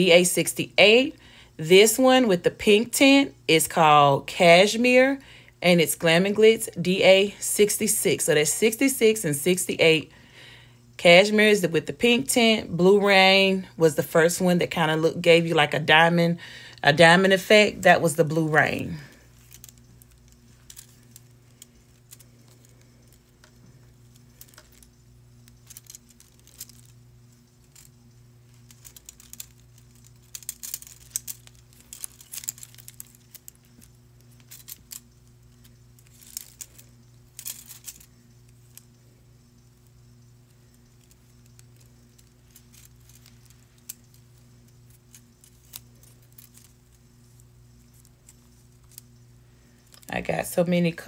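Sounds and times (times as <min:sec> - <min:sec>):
low electrical hum: 0:00.0 - 0:51.0
small tools clattering: 0:18.6 - 0:38.9.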